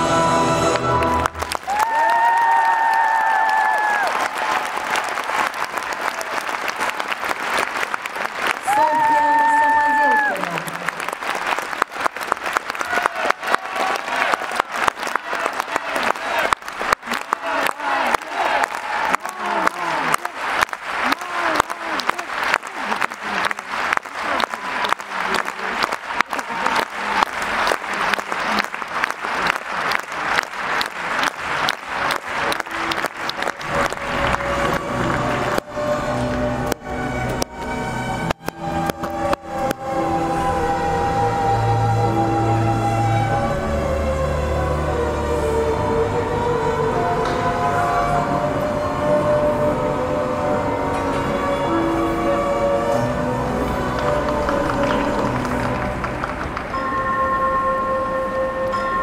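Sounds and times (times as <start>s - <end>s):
crowd clapping rhythmically: 0.6s - 41.0s, 51.7s - 57.6s
audience applauding: 0.6s - 45.8s, 49.5s - 57.3s
orchestral chord: 31.6s - 59.0s.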